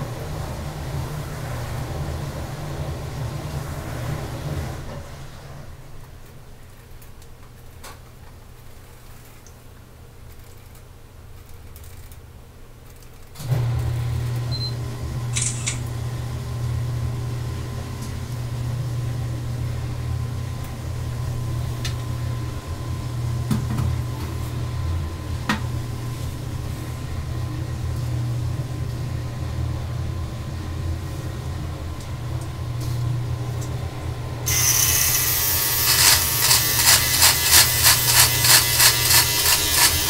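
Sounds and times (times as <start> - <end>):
electric hair clippers buzzing: 34.5 - 40.0.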